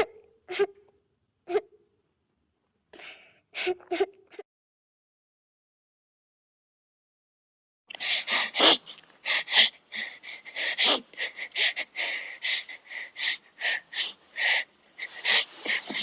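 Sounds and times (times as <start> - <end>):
child crying in gasping sobs: 8.0 - 16.0.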